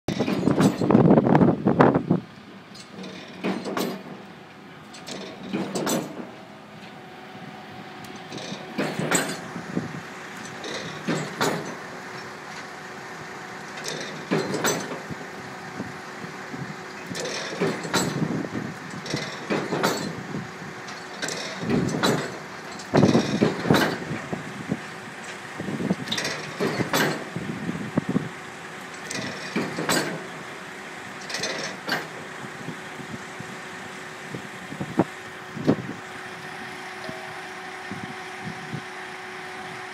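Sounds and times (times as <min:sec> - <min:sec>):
machinery drone: 0:00.1 - 0:39.9
pile-driving hammer striking steel: 0:05.0 - 0:06.4, 0:08.4 - 0:09.5, 0:10.6 - 0:11.8, 0:19.4 - 0:20.2, 0:21.2 - 0:22.4, 0:26.4 - 0:27.3, 0:29.1 - 0:30.3.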